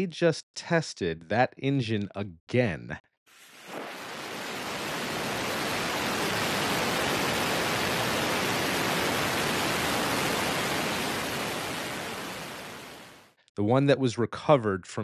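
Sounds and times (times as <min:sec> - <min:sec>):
rocket engine roaring: 0:03.4 - 0:13.3.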